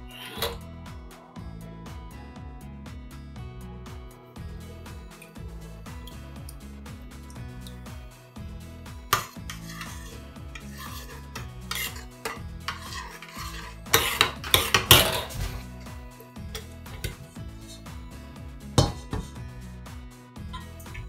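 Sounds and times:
metal spoon scraping saucepan: 0.0s - 0.6s, 9.1s - 17.9s
soft background music: 0.0s - 21.0s
spoon clinking against pan: 11.7s - 15.4s.

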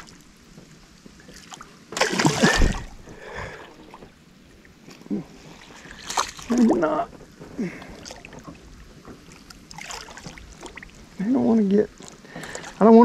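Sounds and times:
fish splashing at surface: 1.9s - 3.2s.

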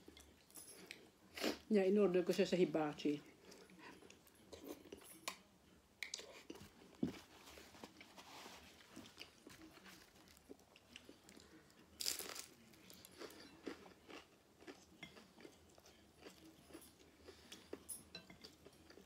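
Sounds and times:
crunchy chewing: 8.7s - 17.8s.

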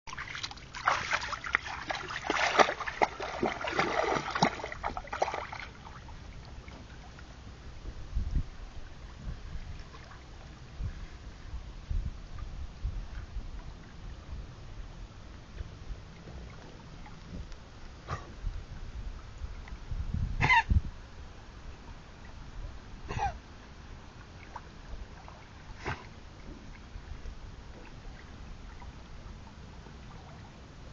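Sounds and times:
dog splashing through water: 0.1s - 6.0s
low rumble: 2.4s - 24.1s.

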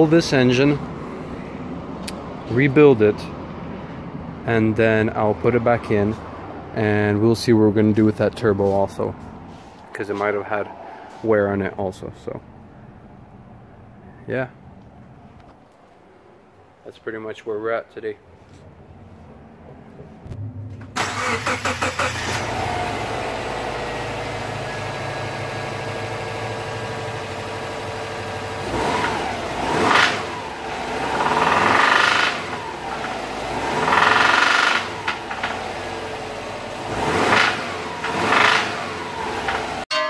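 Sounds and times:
car engine idling: 19.1s - 28.6s
car engine cranking and starting: 20.2s - 39.8s
car engine revving: 20.2s - 39.8s.

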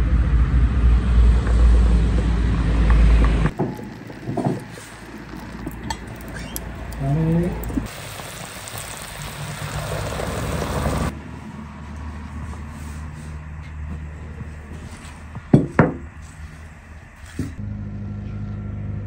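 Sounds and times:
low hum: 0.0s - 19.0s
steaming pot hissing: 3.6s - 11.1s.

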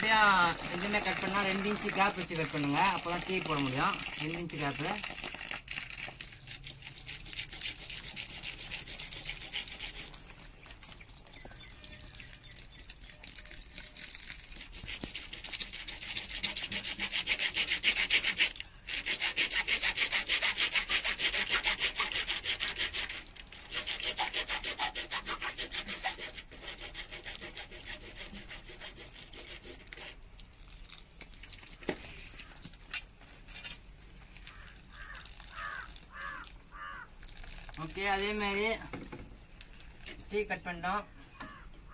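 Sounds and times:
hacksaw cutting plastic pipe: 14.6s - 30.2s.

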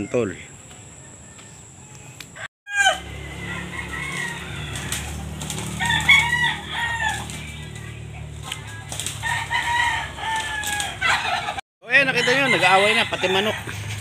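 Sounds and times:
roosters clucking and squawking: 0.0s - 14.0s.

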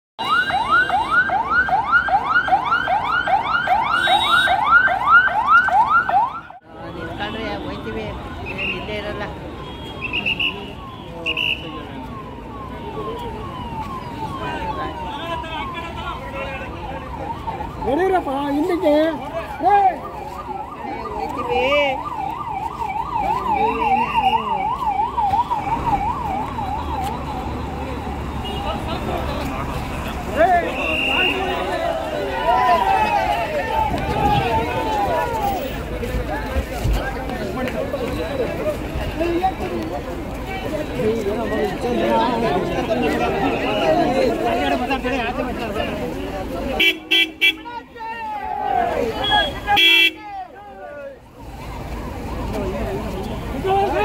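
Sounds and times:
police siren yelping: 0.2s - 6.6s, 10.1s - 28.3s, 29.1s - 35.8s, 50.8s - 54.0s.

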